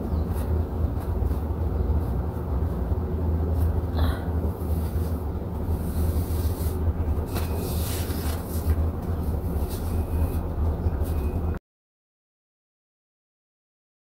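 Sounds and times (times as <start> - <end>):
steady low rumble: 0.0 - 11.6
faint soft rustles: 0.2 - 11.6.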